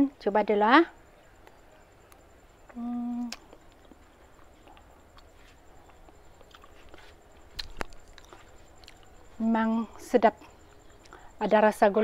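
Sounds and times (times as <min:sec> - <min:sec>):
person chewing with mouth clicks: 0:03.2 - 0:09.1.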